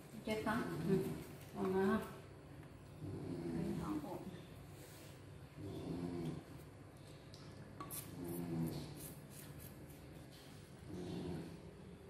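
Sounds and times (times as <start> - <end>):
puppy growling softly: 2.9 - 4.3, 5.4 - 6.7, 10.8 - 11.9.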